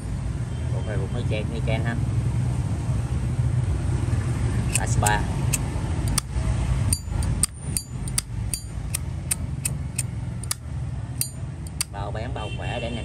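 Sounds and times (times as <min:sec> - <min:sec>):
low traffic rumble: 0:00.0 - 0:13.0
lighter lid clicking: 0:08.1 - 0:10.6.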